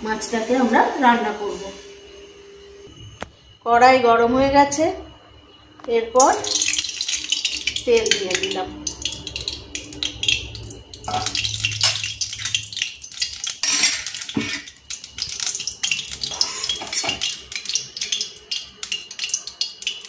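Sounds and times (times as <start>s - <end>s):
hot oil crackling and spitting: 6.2s - 20.0s.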